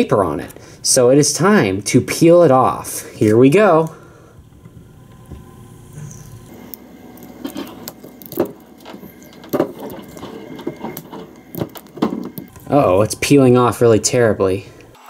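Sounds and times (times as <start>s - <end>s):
crackling and scratching: 6.0s - 13.9s.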